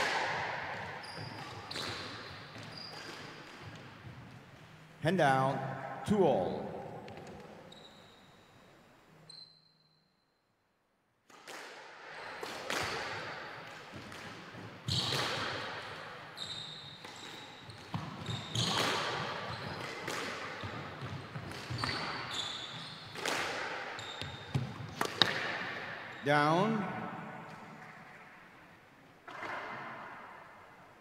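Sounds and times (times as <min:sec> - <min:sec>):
squash ball smacks: 0:00.0 - 0:01.0, 0:11.3 - 0:15.8, 0:17.9 - 0:22.2, 0:23.2 - 0:23.9, 0:24.5 - 0:25.8
shoes squeaking on wooden floor: 0:00.8 - 0:04.6, 0:07.2 - 0:08.6, 0:16.4 - 0:19.8, 0:20.6 - 0:23.2, 0:24.0 - 0:25.0.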